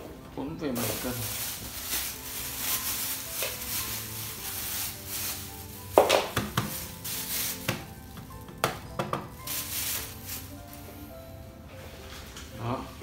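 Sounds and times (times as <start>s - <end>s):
faint background music: 0.0s - 13.0s
plastic bag crinkling: 0.7s - 10.9s.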